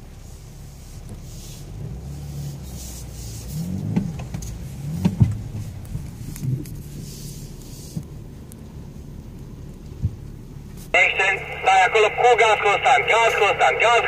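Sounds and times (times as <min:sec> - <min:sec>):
car engine and tyre rumble: 0:00.0 - 0:14.0
knocks from bumps: 0:03.9 - 0:05.5.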